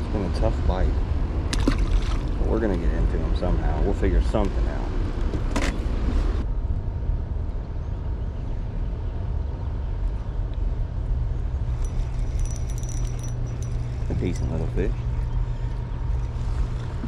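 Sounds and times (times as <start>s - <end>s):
wind rumble: 0.0s - 17.0s
moving water: 1.4s - 2.8s.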